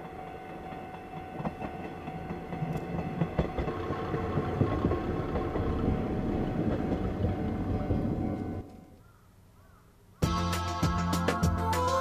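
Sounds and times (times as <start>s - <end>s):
train wheels clicking over rail joints: 0.0s - 8.8s
diesel railcar engine running: 0.0s - 9.0s.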